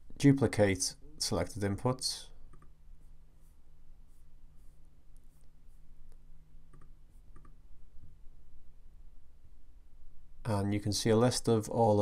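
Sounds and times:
low steady hum: 0.0s - 12.0s
computer mouse clicks: 2.5s - 2.8s, 6.1s - 7.6s.

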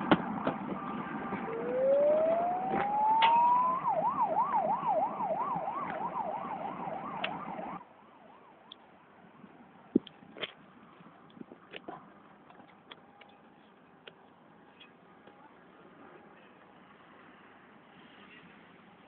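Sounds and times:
siren rising and wailing: 0.6s - 7.8s.

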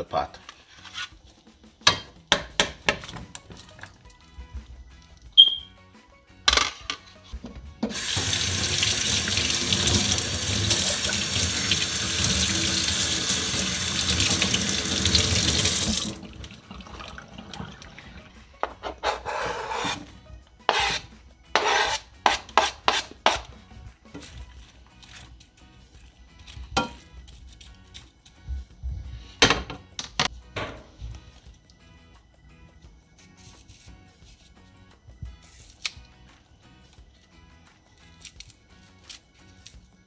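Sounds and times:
rinsing and handling sounds: 3.0s - 5.3s, 7.0s - 20.0s, 24.1s - 28.4s.

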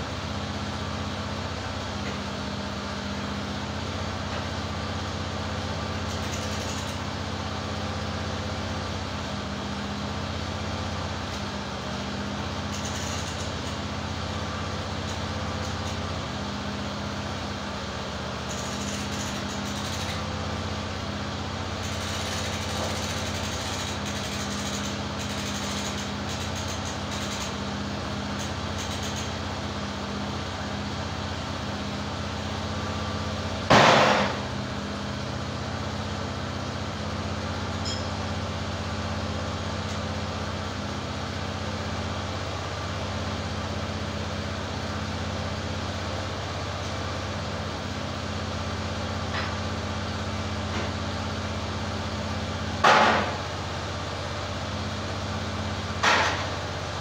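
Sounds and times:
sawmill engine idling: 0.0s - 57.0s
loud thud: 33.7s - 34.4s
light metal clanks: 37.8s - 38.2s.

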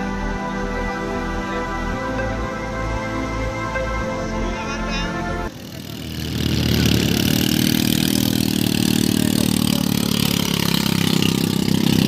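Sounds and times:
quad bike engine idling: 5.5s - 12.0s.

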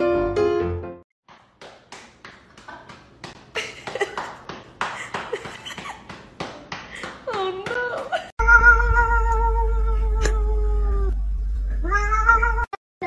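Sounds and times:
piano music: 0.0s - 1.0s.

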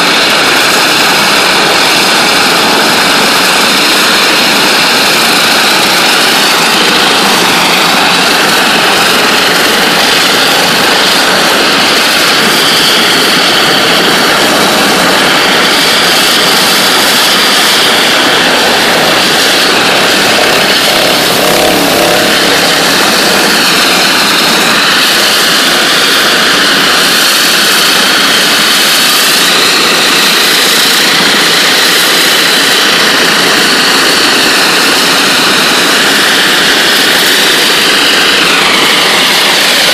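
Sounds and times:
high-pressure water jet hissing: 0.0s - 39.9s.

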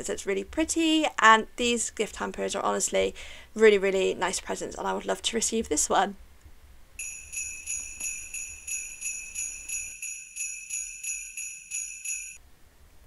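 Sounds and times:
sleigh bells jingling: 7.0s - 12.4s.

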